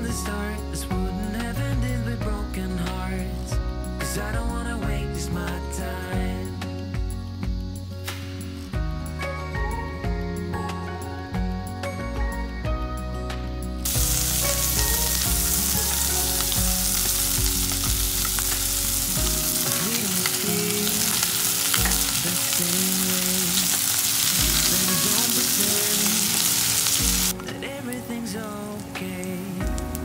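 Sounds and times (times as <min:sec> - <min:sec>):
food sizzling in a frying pan: 0:13.8 - 0:30.0.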